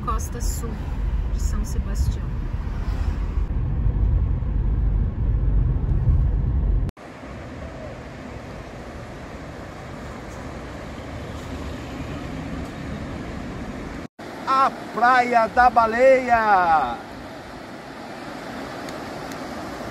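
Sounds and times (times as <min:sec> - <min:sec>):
car road and engine noise: 0:00.0 - 0:19.9
sea surf: 0:07.0 - 0:19.9.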